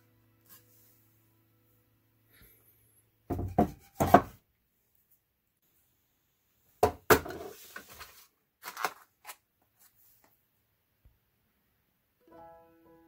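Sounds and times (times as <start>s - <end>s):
plastic pack being picked up: 7.7s - 9.4s.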